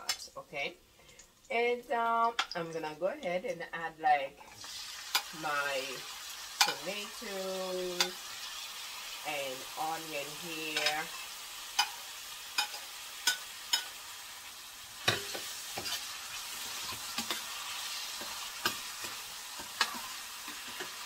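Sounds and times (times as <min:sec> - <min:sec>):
vegetables sizzling in frying pan: 0:04.3 - 0:21.0.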